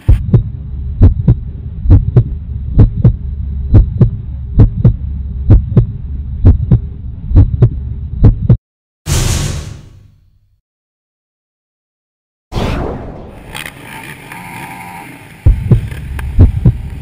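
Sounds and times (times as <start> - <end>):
heartbeat double thumps: 0.0 - 8.6, 15.4 - 16.9
steady low hum: 0.0 - 8.6, 15.3 - 17.0.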